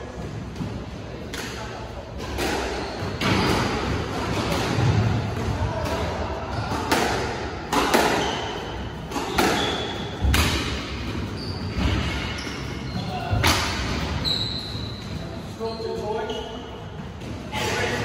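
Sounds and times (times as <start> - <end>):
squash ball impacts: 0.1 - 12.5.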